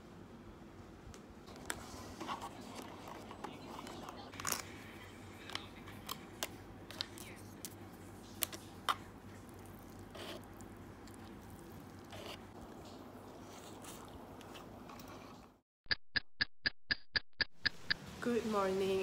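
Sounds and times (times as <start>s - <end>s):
low room hum: 0.0s - 15.6s
soft eating sounds: 1.4s - 15.6s.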